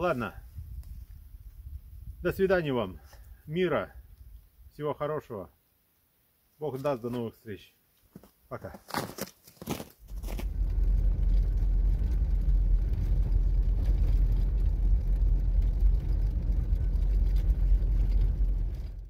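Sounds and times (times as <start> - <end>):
car engine rumble: 10.0 - 19.0
road noise: 10.0 - 19.0.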